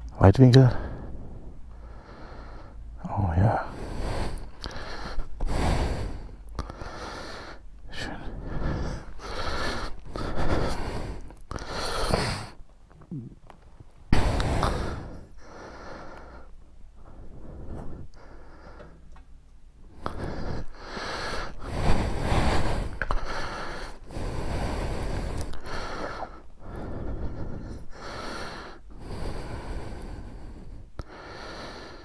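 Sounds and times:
heavy breathing: 0.0s - 13.4s, 14.1s - 32.0s.

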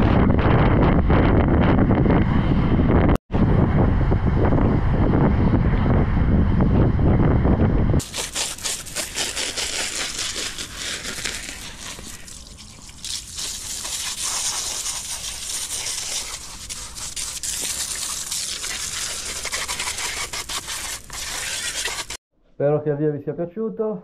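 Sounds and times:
garden hose spraying water: 8.0s - 22.2s
water splashing on wet paving: 8.0s - 22.2s.

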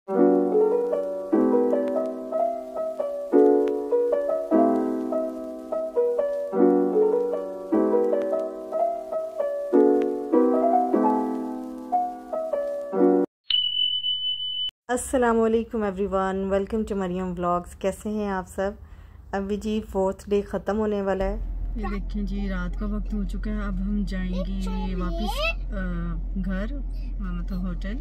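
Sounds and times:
soft piano music: 0.1s - 13.3s.

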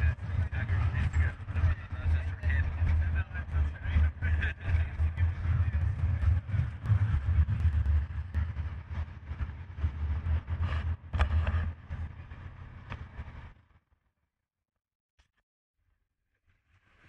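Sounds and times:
wind and road rumble: 0.0s - 13.6s.

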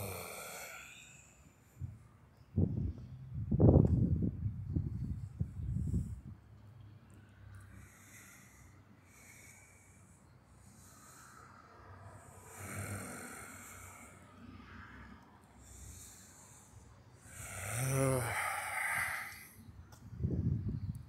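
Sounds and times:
person breathing: 0.0s - 2.0s, 7.6s - 19.7s.

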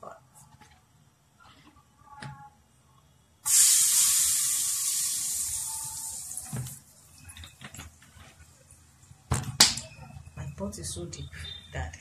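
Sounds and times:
hot oil sizzling: 3.4s - 7.2s.

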